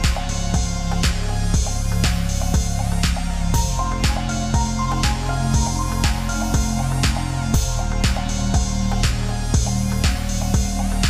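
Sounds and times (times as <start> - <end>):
electronic music with steady beat: 0.0 - 11.0.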